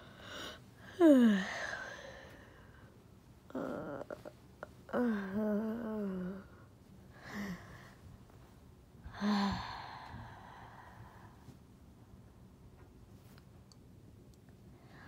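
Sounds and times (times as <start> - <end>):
person sighing: 0.2 - 2.4, 9.1 - 10.8
person humming: 0.9 - 2.2, 3.5 - 6.6.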